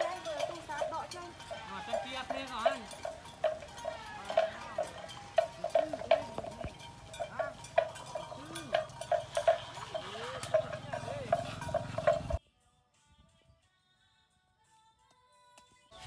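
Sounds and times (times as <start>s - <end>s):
livestock bell clanking: 0.0s - 12.4s.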